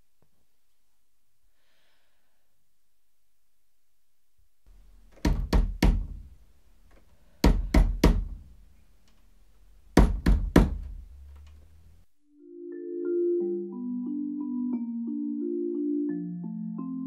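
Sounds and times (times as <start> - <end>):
knocking on a door: 5.1 - 6.3, 7.4 - 8.5, 10.0 - 11.0.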